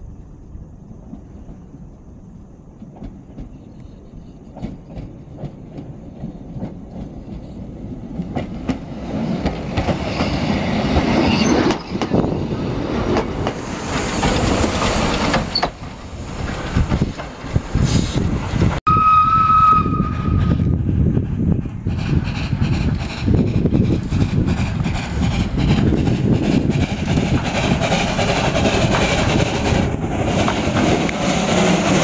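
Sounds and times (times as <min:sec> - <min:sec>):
train rolling rumble and hiss: 0:00.0 - 0:32.0
train wheels clicking over rail joints: 0:00.9 - 0:18.8, 0:20.6 - 0:32.0
train whistle: 0:18.9 - 0:20.7.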